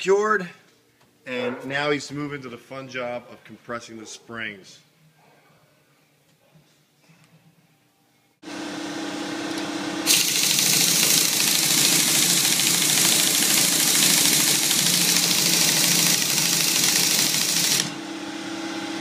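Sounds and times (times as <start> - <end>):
power tool motor whine: 10.0 - 19.0
harsh mechanical rattle: 10.1 - 17.9.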